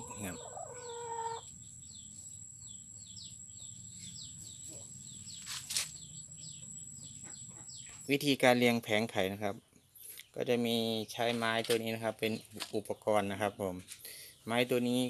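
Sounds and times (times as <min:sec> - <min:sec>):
chickens calling: 0:00.0 - 0:08.1.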